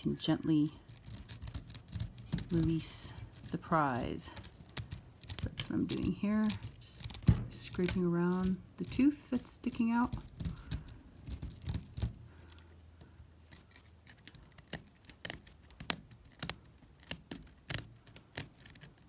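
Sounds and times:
metal tweezers scraping sandstone: 0.2 - 12.1.

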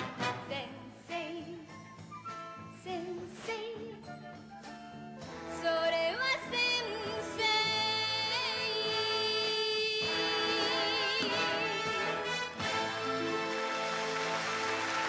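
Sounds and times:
band accompaniment: 0.0 - 0.7, 4.6 - 6.1, 10.0 - 15.0
woman singing pop song: 0.3 - 2.0, 2.6 - 4.5, 5.4 - 12.1.

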